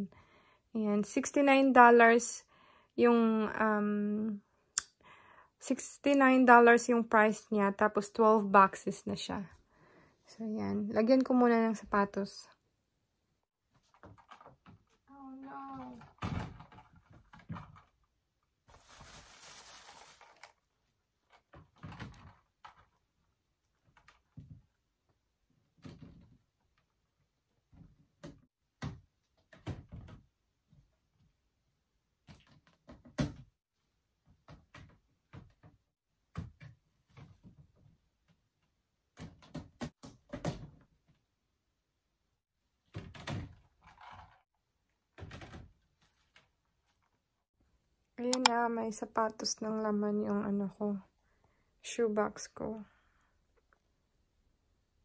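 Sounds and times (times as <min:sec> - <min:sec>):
rustling scrape: 0:18.7 - 0:20.5.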